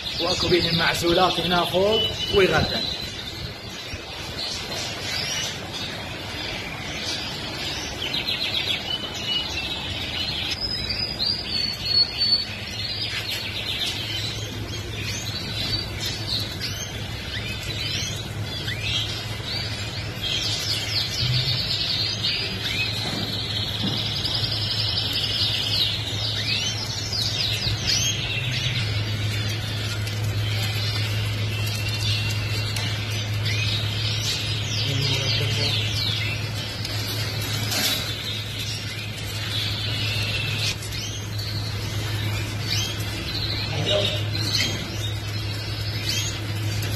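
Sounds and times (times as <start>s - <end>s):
canaries singing: 0.0s - 46.9s
steady low hum: 0.0s - 46.9s.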